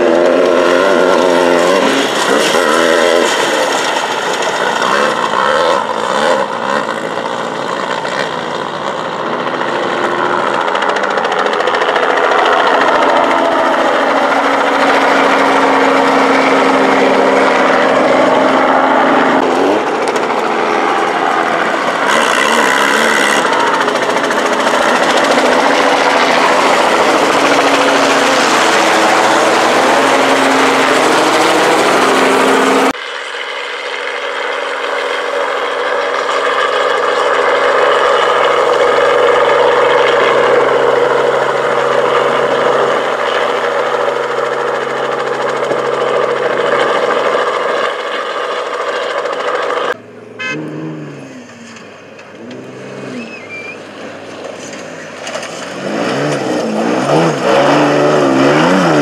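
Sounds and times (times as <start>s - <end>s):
helicopter rotor chop: 0.0s - 59.0s
race buggy engine speeding past: 50.0s - 53.9s, 55.0s - 59.0s.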